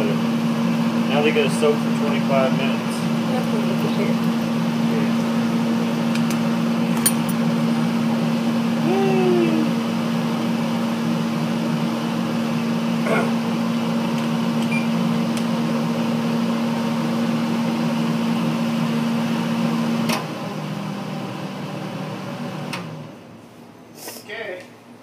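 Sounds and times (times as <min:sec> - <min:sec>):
vent fan humming: 0:00.0 - 0:25.0.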